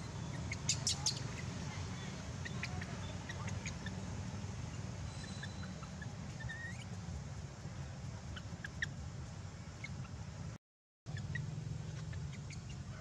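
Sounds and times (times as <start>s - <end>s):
small animal chirps and squeaks: 0.0s - 4.1s, 4.7s - 6.9s, 8.3s - 9.0s, 9.8s - 10.2s, 11.1s - 13.0s.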